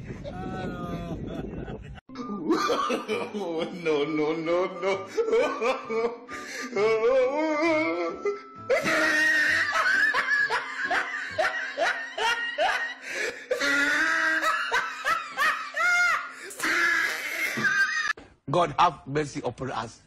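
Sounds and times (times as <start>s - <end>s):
people laughing and snickering: 0.0s - 7.0s, 8.7s - 18.2s
background music: 0.1s - 20.0s.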